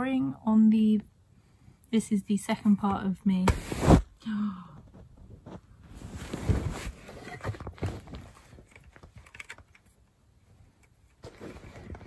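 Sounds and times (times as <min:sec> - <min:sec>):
rustling: 0:05.0 - 0:12.0.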